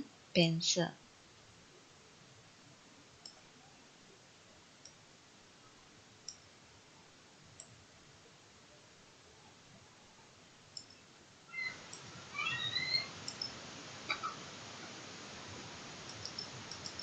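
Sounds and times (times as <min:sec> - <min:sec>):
faint computer mouse clicks: 0:06.2 - 0:06.4, 0:07.6 - 0:07.8, 0:10.7 - 0:11.0, 0:13.2 - 0:13.6, 0:16.1 - 0:17.0.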